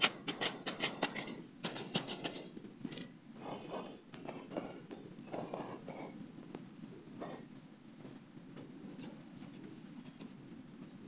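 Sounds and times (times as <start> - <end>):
knife scraping into gravelly soil: 0.0 - 2.5.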